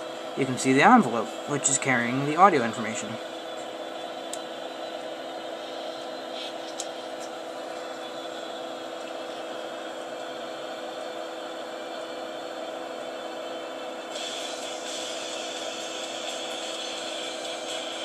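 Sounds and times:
steady hum tones: 0:00.0 - 0:18.0
electric arc hissing buzz: 0:14.1 - 0:18.0.

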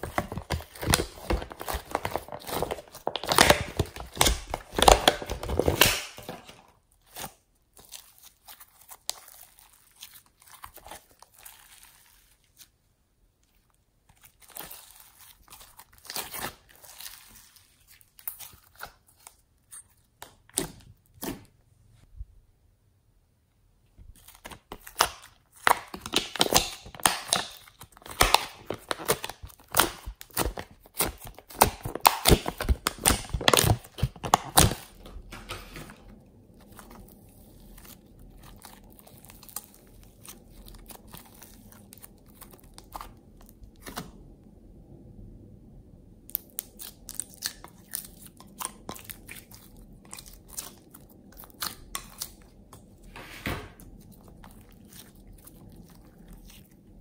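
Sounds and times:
plastic tray crinkling and crackling: 0:00.0 - 0:12.6, 0:24.0 - 0:44.2
sticky squishing of clay by hand: 0:00.0 - 0:21.6, 0:24.0 - 0:44.2, 0:46.3 - 0:53.1, 0:53.8 - 0:57.0.

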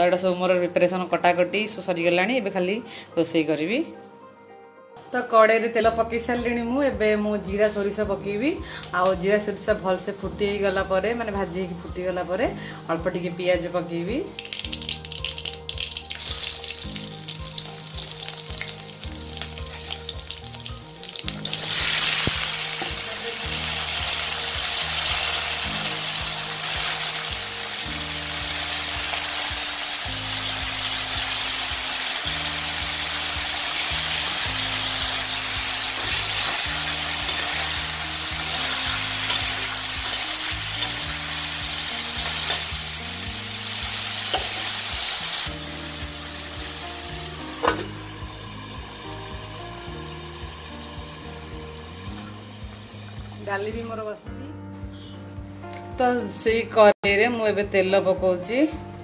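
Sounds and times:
background music: 0:00.0 - 0:59.0
vegetables sizzling in hot oil: 0:07.5 - 0:54.1.

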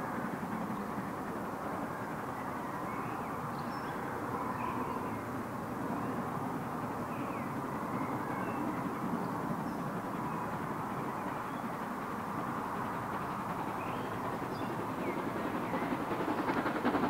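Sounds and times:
distant steam locomotive working: 0:00.0 - 0:17.0.

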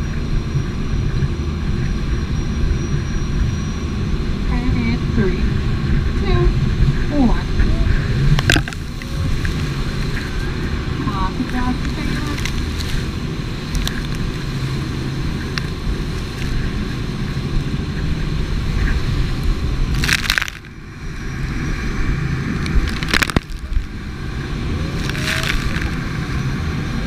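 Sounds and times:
boat engine rumble: 0:00.0 - 0:27.0
loud rushes of noise: 0:00.0 - 0:27.0
wind: 0:00.0 - 0:27.0
rushing water: 0:22.5 - 0:27.0.

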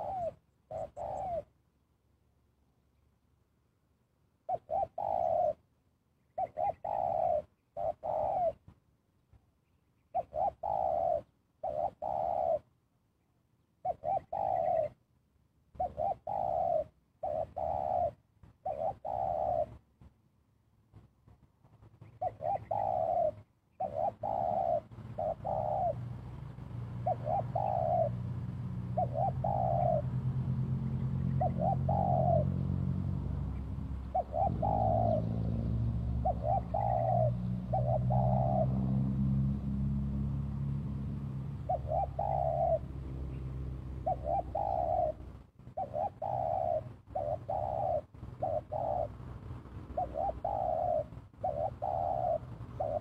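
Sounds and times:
dove cooing: 0:00.0 - 0:01.5, 0:04.5 - 0:05.6, 0:06.4 - 0:08.6, 0:10.1 - 0:12.7, 0:13.8 - 0:15.0, 0:15.7 - 0:19.8, 0:22.0 - 0:53.0.

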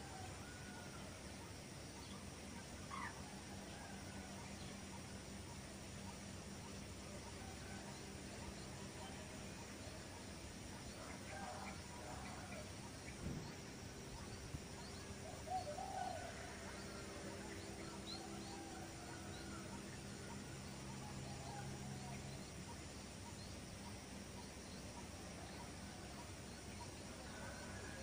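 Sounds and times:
bird calls: 0:00.0 - 0:28.0
steady low hum: 0:00.0 - 0:28.0.

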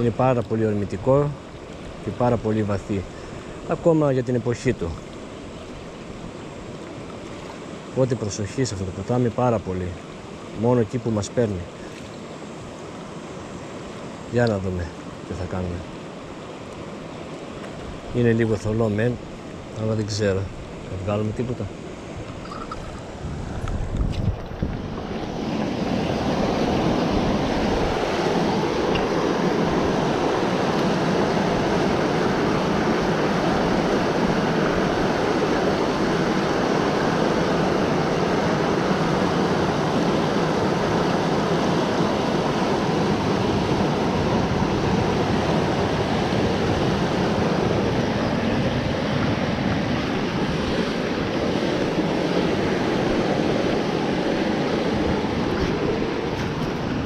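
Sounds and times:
river rushing over rocks: 0:11.2 - 0:57.0.

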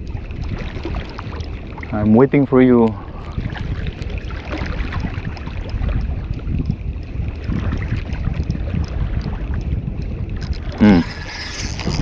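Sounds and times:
water lapping at shore: 0:00.0 - 0:12.0
wind buffeting microphone: 0:00.0 - 0:12.0.

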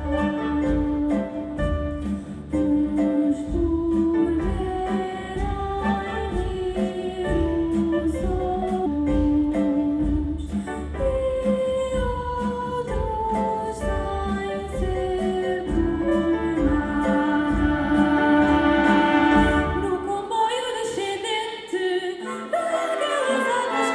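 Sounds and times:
drum strikes: 0:00.0 - 0:20.1
instrumental ensemble: 0:00.0 - 0:20.4
children's choir singing: 0:16.6 - 0:20.0.

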